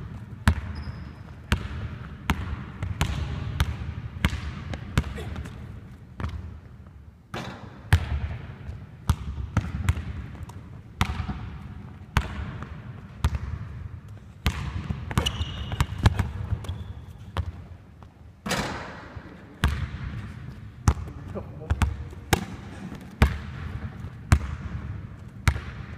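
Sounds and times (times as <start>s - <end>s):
high squeaks: 15.2s - 16.0s
basketball bouncing on hardwood: 19.6s - 20.1s, 23.2s - 24.8s.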